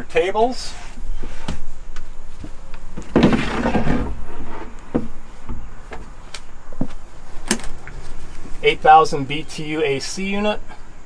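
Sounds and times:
tabletop scraping slide: 0:03.2 - 0:05.0.

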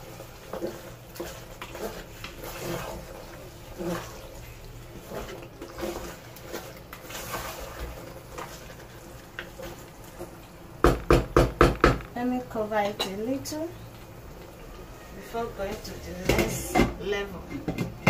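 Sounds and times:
stew squelching and sizzling: 0:00.0 - 0:18.0
spatula knocking against pot: 0:10.8 - 0:12.1.

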